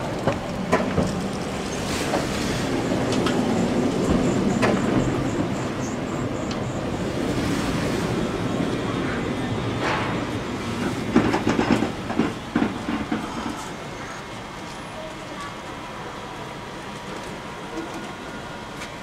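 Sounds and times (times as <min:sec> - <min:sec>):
streetcar wheels and motor rumbling: 0:00.0 - 0:19.0.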